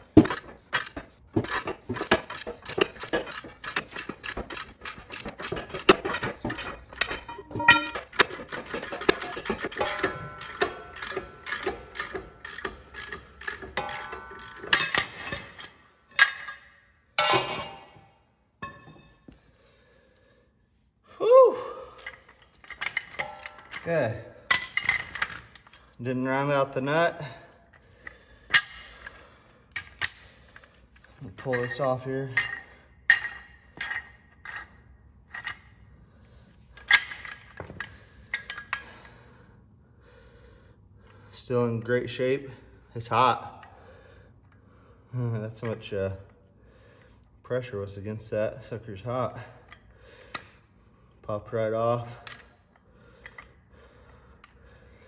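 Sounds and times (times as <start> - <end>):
metal clanking on metal: 0.0 - 19.2, 22.0 - 25.7
metal tools clinking: 0.0 - 19.2, 21.9 - 26.6, 28.0 - 35.8, 36.7 - 39.1, 52.0 - 52.6
hand ratchet clicking: 0.1 - 16.6.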